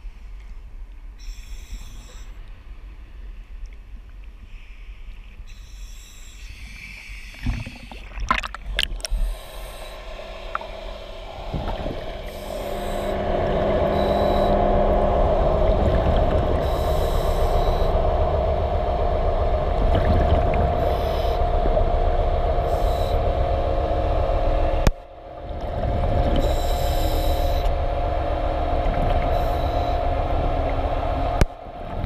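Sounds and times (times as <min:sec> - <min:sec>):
sea water lapping and splashing: 0:06.6 - 0:32.0
underwater rushing noise: 0:07.4 - 0:32.0.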